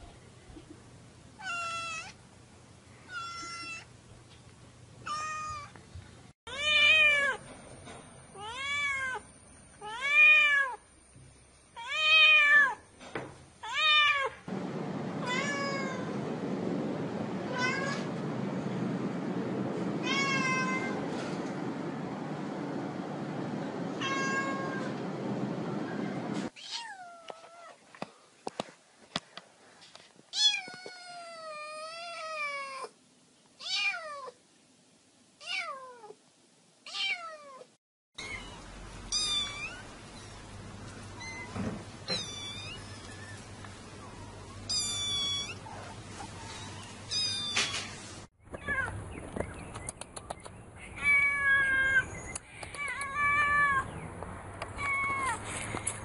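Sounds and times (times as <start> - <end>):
cats meowing: 20.0 - 21.0, 24.0 - 25.0, 36.9 - 40.3, 41.2 - 43.4, 44.0 - 47.9, 50.9 - 52.1, 52.7 - 54.0, 54.6 - 55.5.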